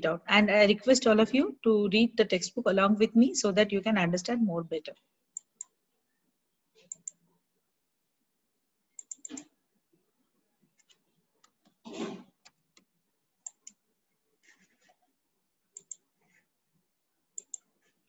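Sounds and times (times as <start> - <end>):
computer mouse clicks: 6.8 - 7.2, 9.0 - 9.5, 12.4 - 13.8, 15.8 - 16.0, 17.4 - 17.8.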